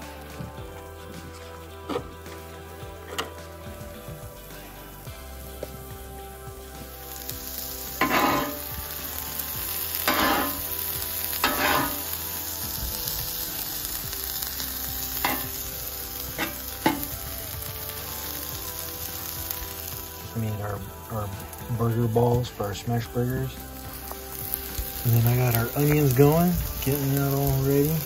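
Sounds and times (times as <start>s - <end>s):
onions sizzling on griddle: 0.0s - 28.0s
metal spatula scraping griddle: 7.8s - 12.7s, 15.2s - 17.2s.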